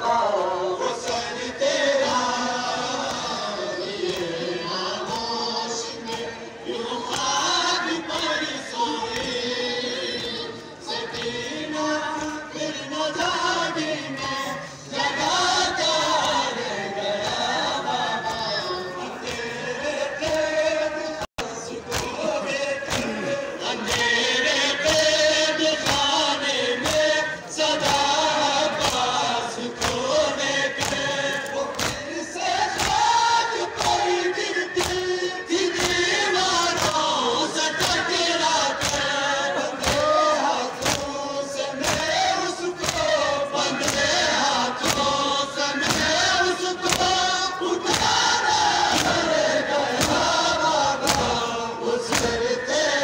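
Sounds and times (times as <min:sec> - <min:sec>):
men chanting in unison: 0:00.0 - 0:53.0
chest-beating slaps: 0:21.9 - 0:24.1, 0:29.8 - 0:37.1, 0:38.8 - 0:41.2, 0:41.8 - 0:42.2, 0:42.8 - 0:43.2, 0:43.8 - 0:45.2, 0:45.8 - 0:47.2, 0:47.8 - 0:52.5.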